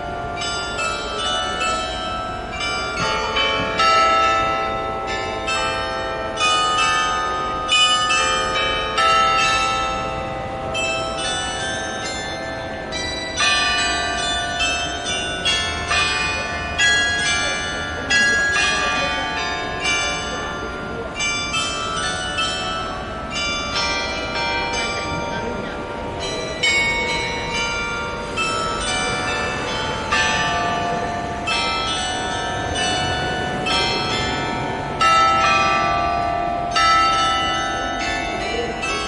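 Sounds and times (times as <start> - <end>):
church bells pealing: 0.0 - 39.0.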